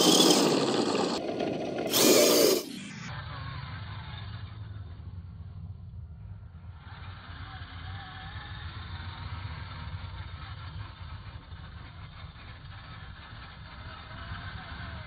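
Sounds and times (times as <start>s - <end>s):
tyres churning snow: 0.0s - 2.8s
simulated engine rumble: 0.0s - 15.0s.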